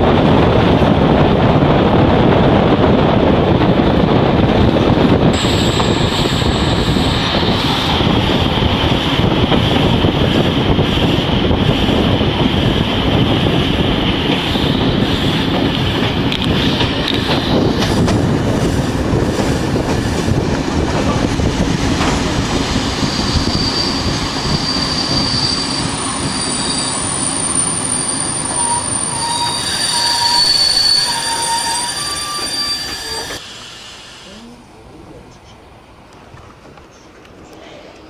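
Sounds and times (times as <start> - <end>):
train rumbling and rattling on rails: 0.0 - 38.0
train wheels squealing: 22.9 - 34.2.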